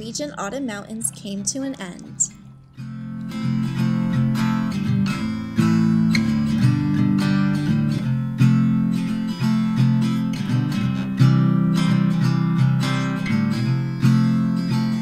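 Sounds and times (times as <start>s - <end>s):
acoustic guitar strumming chords: 0.0s - 15.0s.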